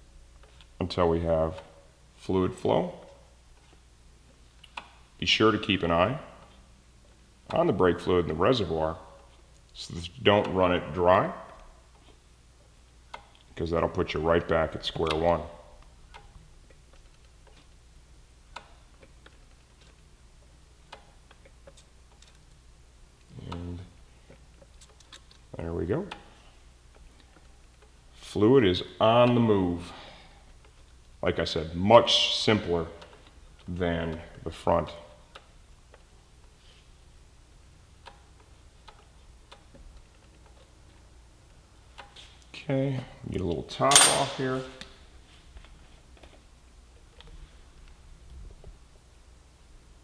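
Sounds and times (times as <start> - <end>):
low steady hum: 0.0 - 50.0
wrench clicking on metal: 43.9 - 44.6.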